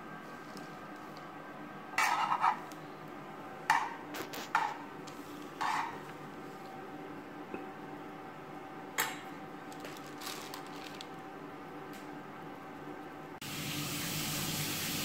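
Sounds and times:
utensils scraping and clattering: 0:02.0 - 0:02.7, 0:03.7 - 0:06.1.

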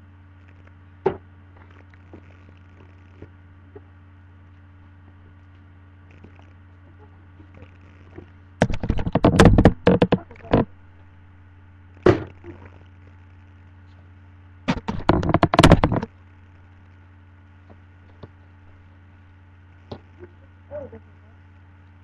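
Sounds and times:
objects knocking on tabletop: 0:08.6 - 0:10.7, 0:14.7 - 0:16.1.

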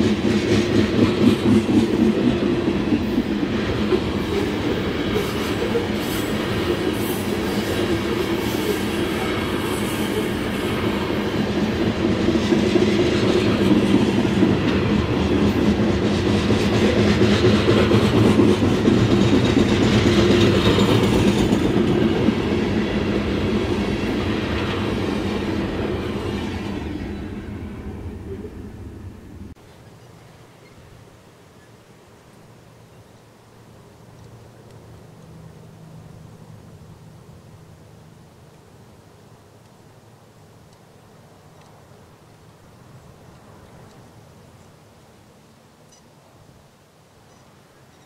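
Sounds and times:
train wheels rumbling on rails: 0:00.0 - 0:30.8.

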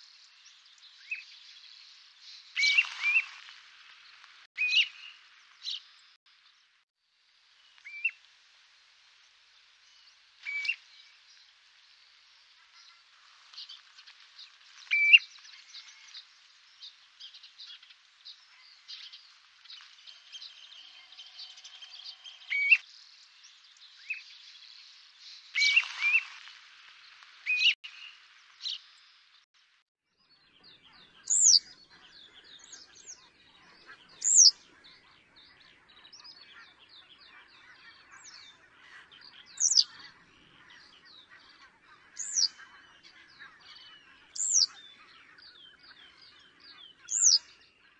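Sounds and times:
small bird chirps: 0:00.1 - 0:03.5, 0:09.9 - 0:11.5, 0:14.8 - 0:26.4, 0:30.2 - 0:47.9
birds upslurred whistles: 0:02.6 - 0:03.3, 0:21.3 - 0:22.8, 0:25.6 - 0:26.3, 0:30.9 - 0:47.5.

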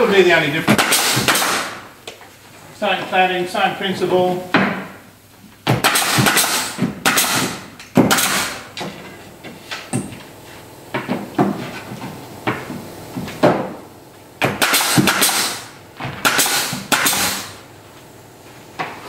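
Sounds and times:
nail gun driving nails: 0:00.7 - 0:01.8, 0:05.6 - 0:08.8, 0:14.4 - 0:17.6.

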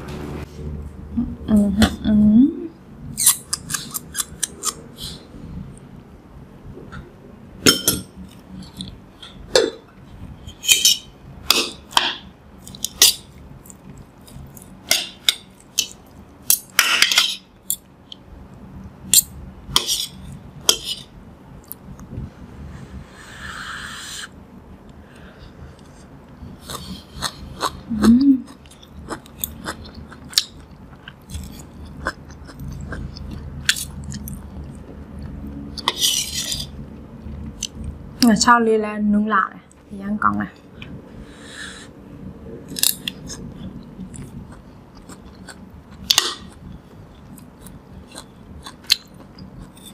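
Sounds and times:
chewing: 0:28.4 - 0:37.9, 0:42.7 - 0:49.9.

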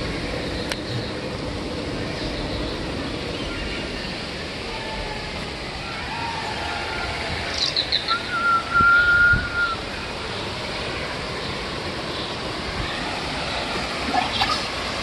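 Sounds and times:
outdoor background noise: 0:00.0 - 0:15.0
long steady whistle: 0:08.1 - 0:09.9.

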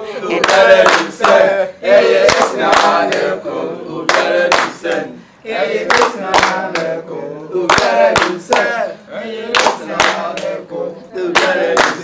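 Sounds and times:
group singing a chant: 0:00.0 - 0:12.0
hands clapping: 0:00.4 - 0:01.4, 0:02.2 - 0:03.3, 0:04.1 - 0:05.1, 0:05.9 - 0:07.0, 0:07.7 - 0:08.8, 0:09.5 - 0:10.6, 0:11.3 - 0:12.0.

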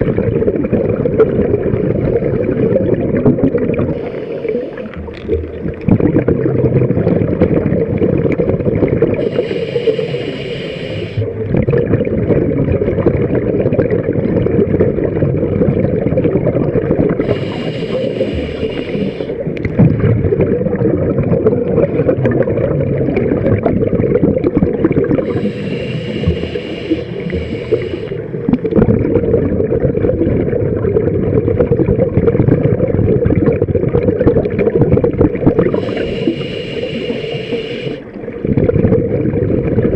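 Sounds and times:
exhaled bubbles rushing: 0:00.0 - 0:39.9
hissing inhale through regulator: 0:03.9 - 0:05.2, 0:09.1 - 0:11.4, 0:17.1 - 0:19.6, 0:25.0 - 0:28.5, 0:35.6 - 0:38.3.

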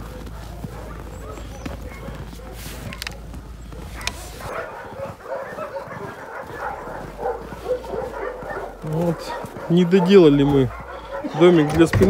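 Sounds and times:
dogs barking and yelping: 0:00.0 - 0:12.0.

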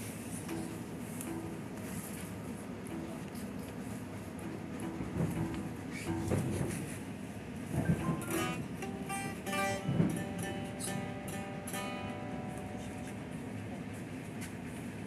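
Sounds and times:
electric guitar strings plucked: 0:00.5 - 0:01.8, 0:04.4 - 0:06.8, 0:07.8 - 0:13.3.

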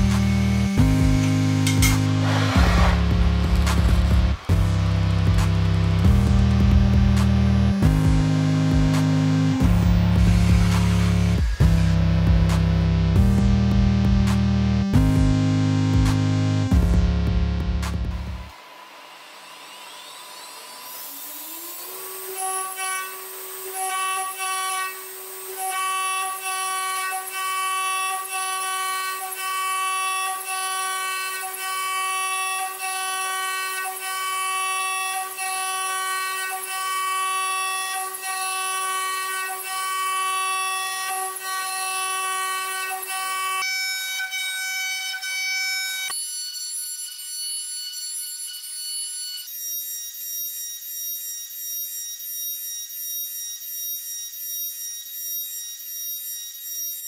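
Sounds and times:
milling spindle whine: 0:18.4 - 0:57.0.

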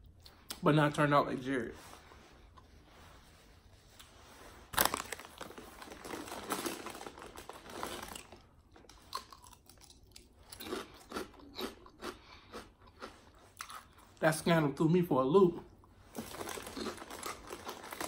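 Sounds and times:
paper wrapper crinkling: 0:04.7 - 0:08.9, 0:16.1 - 0:18.0
chewing with mouth clicks: 0:08.8 - 0:14.0.

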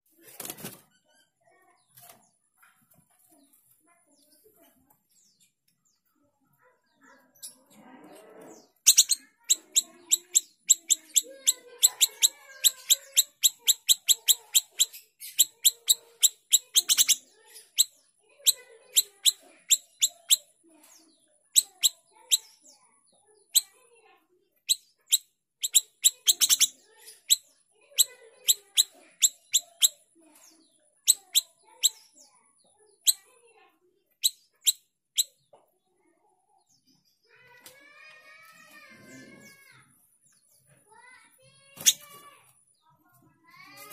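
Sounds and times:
songbird chipping: 0:08.6 - 0:23.9, 0:24.6 - 0:33.4.

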